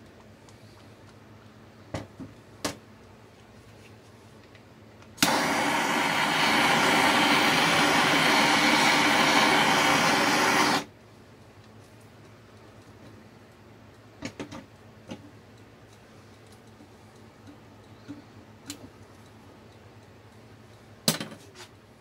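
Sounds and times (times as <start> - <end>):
gas torch hissing: 5.2 - 10.9.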